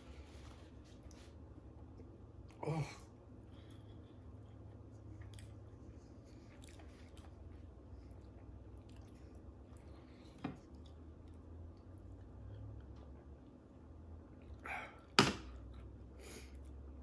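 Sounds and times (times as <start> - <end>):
low room hum: 0.0 - 17.0
chewing and wet mouth sounds: 3.3 - 14.7.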